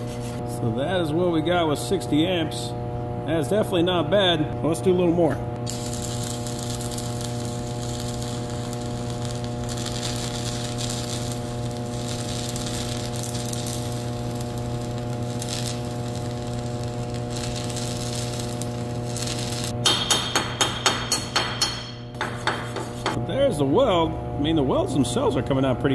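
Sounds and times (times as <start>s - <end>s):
welder hum: 0.0s - 25.9s
welding arc crackling sizzle: 5.6s - 23.2s.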